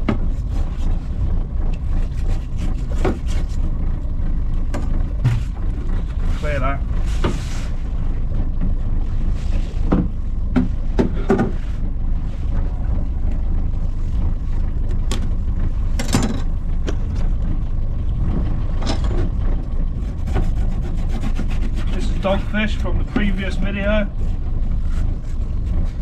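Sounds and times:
knocks and clunks on boat deck: 0.0 - 26.0
steady low rumble: 0.0 - 26.0.

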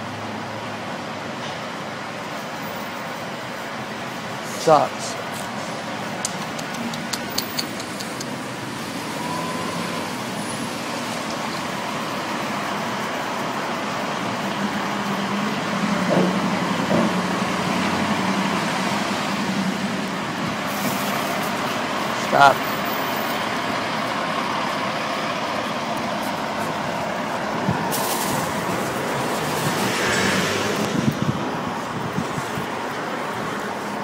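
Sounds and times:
road traffic hum: 0.0 - 34.0
sharp clicks: 6.2 - 8.5.

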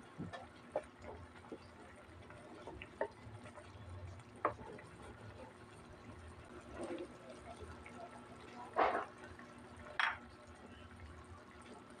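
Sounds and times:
sauce bubbling with pops: 0.1 - 6.6.

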